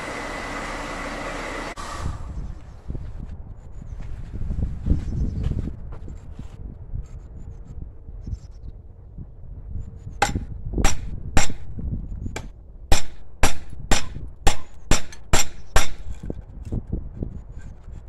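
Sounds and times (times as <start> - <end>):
hammer striking hot metal: 10.2 - 11.7, 12.4 - 16.2.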